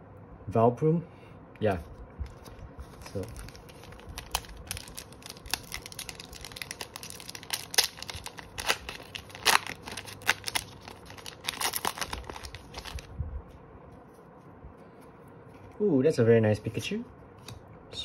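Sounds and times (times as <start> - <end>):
foil wrapper tearing and crinkling: 2.2 - 13.1.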